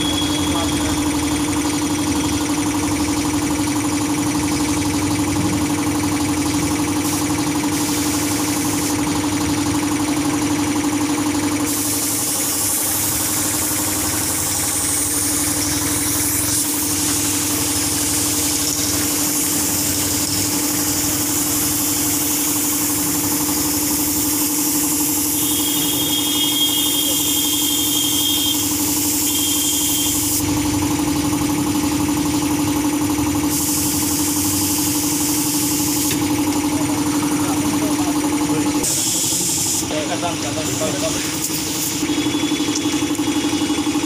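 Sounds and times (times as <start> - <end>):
air compressor humming: 0.0 - 44.0
spray gun hissing: 7.0 - 9.1, 11.7 - 30.5, 33.4 - 36.4, 38.8 - 40.0.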